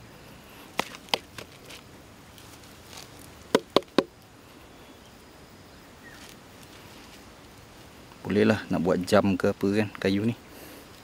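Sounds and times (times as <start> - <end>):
wooden log slices knocking: 0.7 - 1.8, 3.5 - 4.1.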